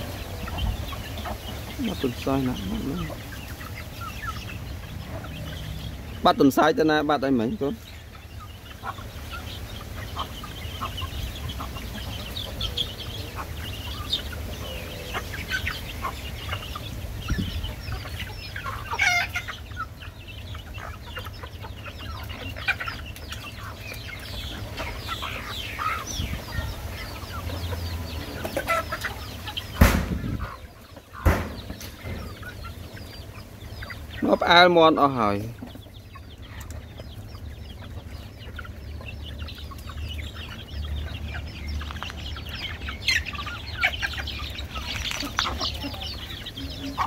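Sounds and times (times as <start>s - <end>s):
chickens clucking: 0.0s - 47.0s
sharp knock: 29.8s - 30.3s, 31.2s - 31.7s.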